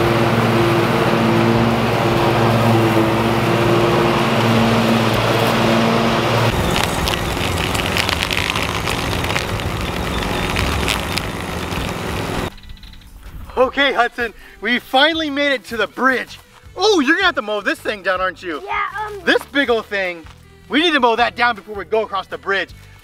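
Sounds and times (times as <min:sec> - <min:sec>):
mower blades cutting grass: 0:00.0 - 0:12.5
riding mower engine hum: 0:00.0 - 0:12.6
rough noise with sharp ticks: 0:06.5 - 0:13.1.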